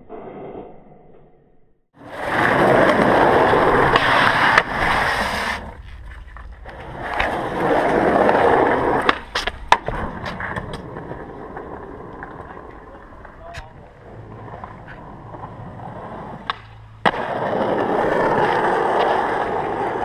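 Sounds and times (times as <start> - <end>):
skateboard wheels rolling on concrete: 2.0 - 20.0
skateboard clacking on concrete: 2.1 - 20.0.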